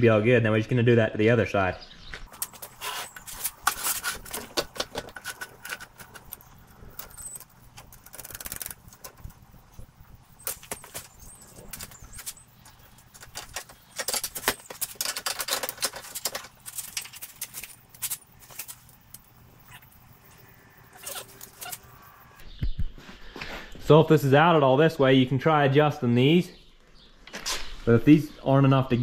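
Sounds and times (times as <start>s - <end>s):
metal tools clicking and clinking: 2.3s - 9.3s, 10.4s - 19.3s.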